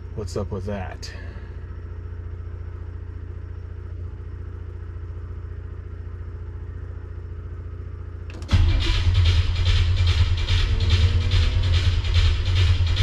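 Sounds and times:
engine starter cranking: 0:08.2 - 0:13.0
loud music: 0:08.3 - 0:13.0.

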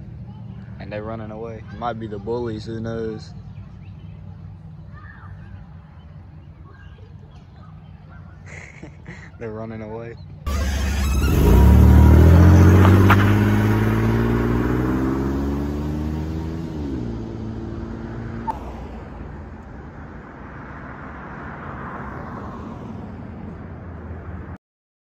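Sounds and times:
car engine accelerating: 0:10.5 - 0:24.6.

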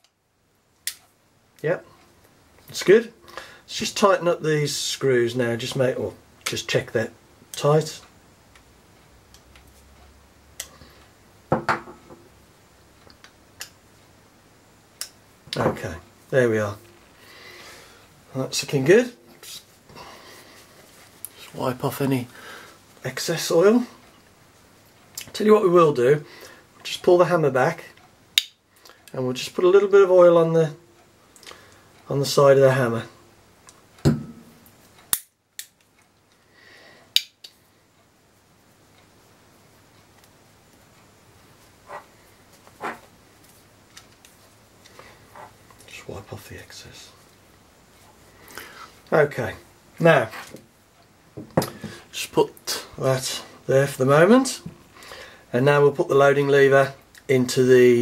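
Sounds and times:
soft hiss: 0:00.0 - 0:58.0
dull knock: 0:34.1 - 0:34.4.

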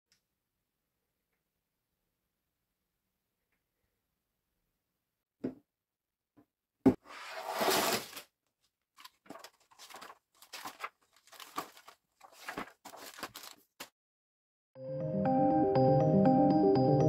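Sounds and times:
cardboard lid scraping off: 0:07.0 - 0:08.2
paper and plastic rustling: 0:09.0 - 0:13.9.

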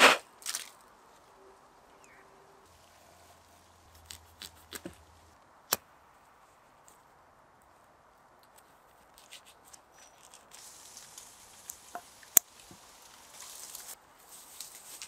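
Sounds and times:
footstep crunching dry leaves: 0:00.0 - 0:00.9, 0:09.0 - 0:15.0.

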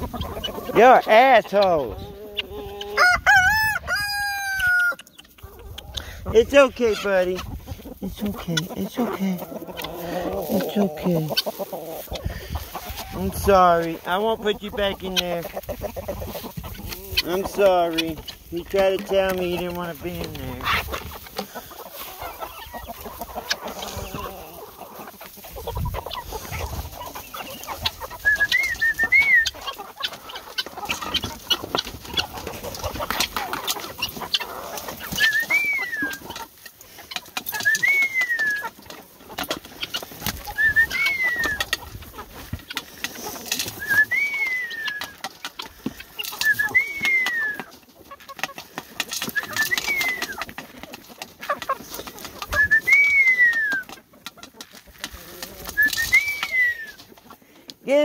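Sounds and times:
birds pecking grain: 0:00.0 - 0:58.0
bird whistled call: 0:28.2 - 0:29.6, 0:35.2 - 0:36.2, 0:40.6 - 0:41.7, 0:43.8 - 0:45.2, 0:49.3 - 0:50.4, 0:55.8 - 0:57.0.

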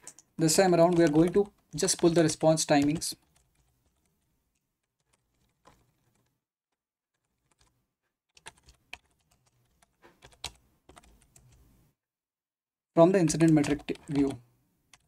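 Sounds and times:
computer keyboard keystrokes: 0:00.8 - 0:04.1, 0:08.3 - 0:11.5, 0:13.3 - 0:15.0.

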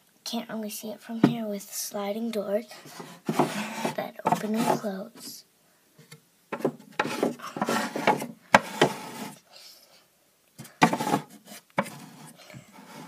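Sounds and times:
wooden sliding doors scraping: 0:02.9 - 0:04.9, 0:06.6 - 0:09.4, 0:10.8 - 0:13.0.

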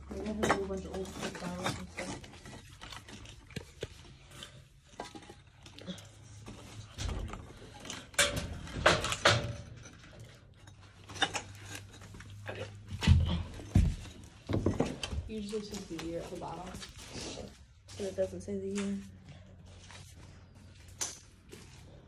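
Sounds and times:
rubble knocking and clattering: 0:00.0 - 0:04.2, 0:06.4 - 0:16.2.

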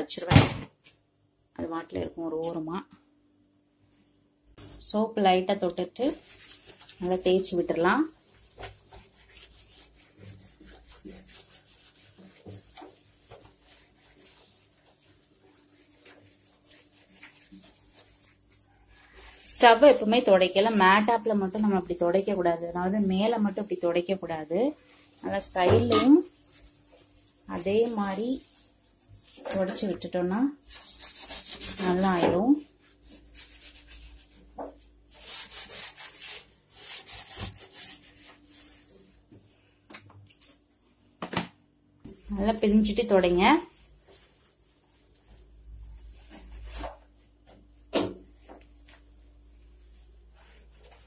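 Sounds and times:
scrubber pad scrubbing metal: 0:05.8 - 0:18.5, 0:19.5 - 0:30.1.

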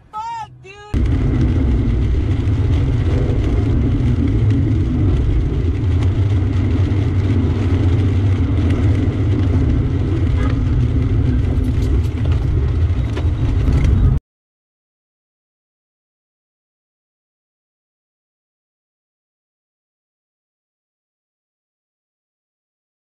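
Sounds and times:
car cabin road rumble: 0:00.0 - 0:14.2
tyres on wet road: 0:00.0 - 0:14.2.

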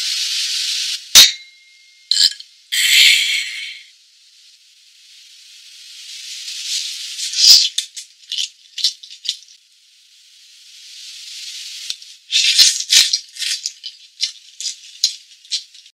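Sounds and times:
shaker rattling: 0:06.6 - 0:09.6, 0:12.0 - 0:15.9.

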